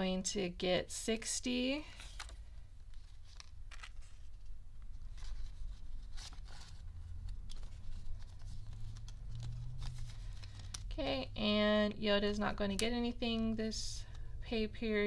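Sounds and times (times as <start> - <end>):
paper banknotes rustling: 1.8 - 11.0.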